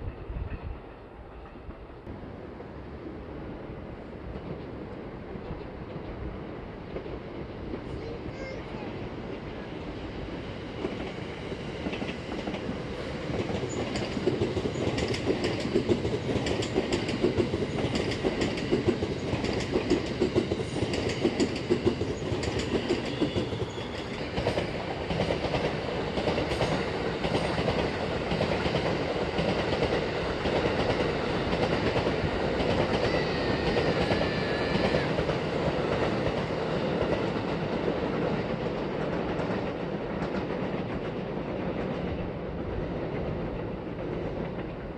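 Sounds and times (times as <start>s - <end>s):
train rumble: 0.0s - 44.9s
train clattering over rail joints: 10.3s - 44.9s.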